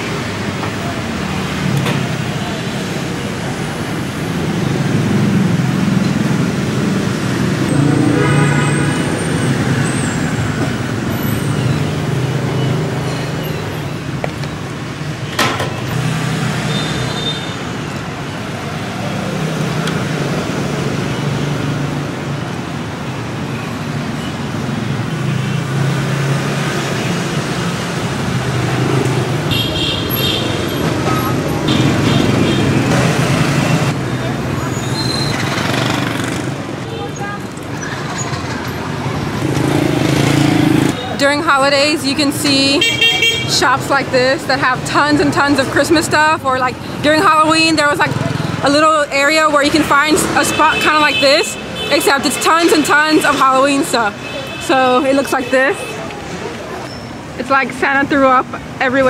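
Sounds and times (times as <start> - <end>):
passing motorbikes and cars: 0.0 - 59.0.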